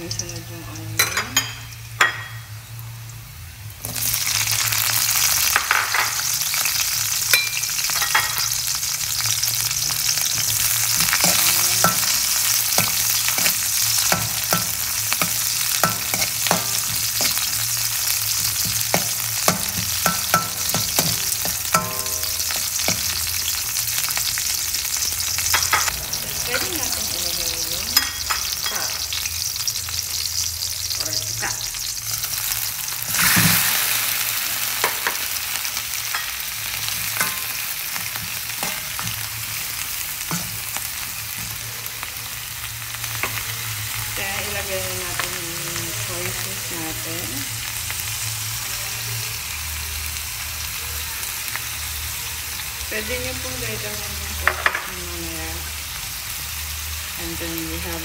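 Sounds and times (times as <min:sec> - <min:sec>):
onion sizzling in hot oil: 0:00.0 - 0:58.0.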